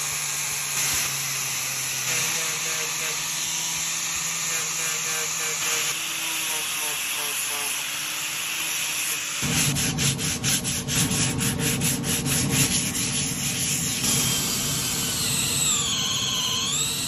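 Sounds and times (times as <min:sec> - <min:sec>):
sanding disc hiss: 0:01.8 - 0:17.0
sandpaper rubbing on wood: 0:02.1 - 0:16.9
wavering squeal: 0:13.0 - 0:17.0.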